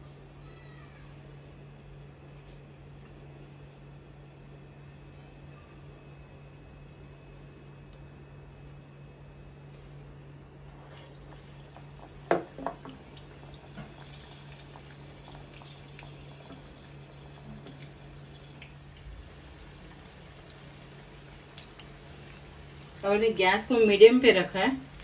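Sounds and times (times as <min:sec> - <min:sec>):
oil sizzling and bubbling: 0:00.0 - 0:25.0
small pops and clicks: 0:21.5 - 0:22.0.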